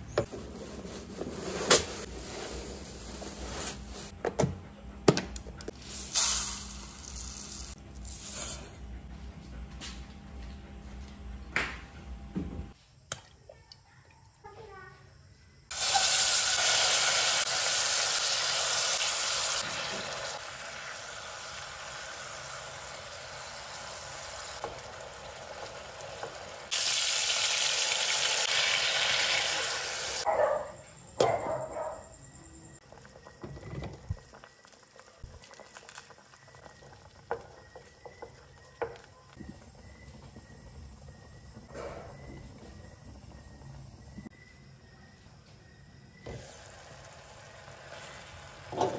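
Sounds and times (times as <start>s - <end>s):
meat sizzling in a pot: 15.7s - 30.3s, 34.1s - 39.4s, 46.2s - 48.9s.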